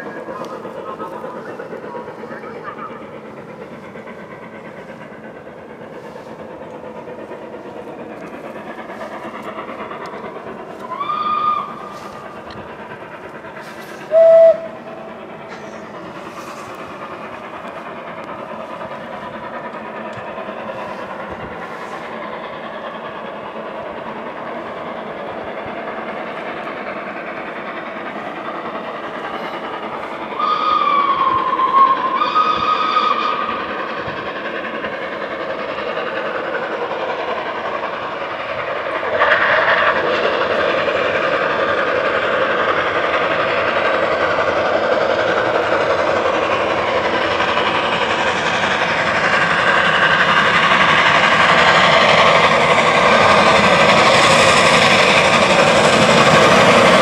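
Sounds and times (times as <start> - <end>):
steam train running: 0.0 - 57.0
steam locomotive whistle: 10.8 - 12.1, 14.1 - 14.8, 30.3 - 33.5.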